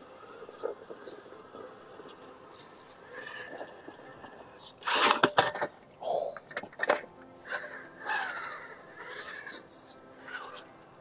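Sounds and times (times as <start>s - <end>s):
faint motor whir: 0.0s - 6.0s.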